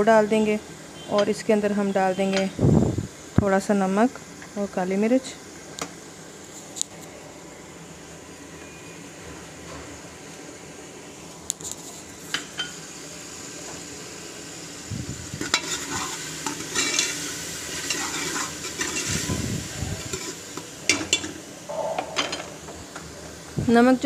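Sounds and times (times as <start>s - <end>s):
onions sizzling in oil: 10.0s - 24.0s
ladle stirring and scraping pot: 15.4s - 19.4s.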